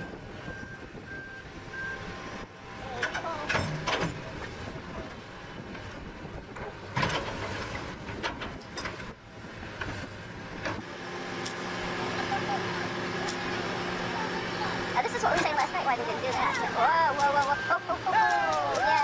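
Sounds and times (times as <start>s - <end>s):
diesel engines under load: 0.0s - 19.0s
beeping alarm: 17.4s - 18.0s.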